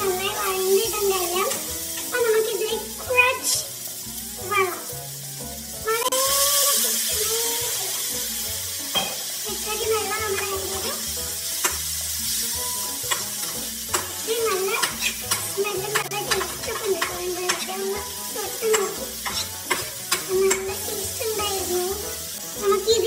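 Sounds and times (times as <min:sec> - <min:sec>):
food sizzling in a pan: 0:00.0 - 0:23.0
utensil scraping pan: 0:13.0 - 0:18.1, 0:18.7 - 0:20.9.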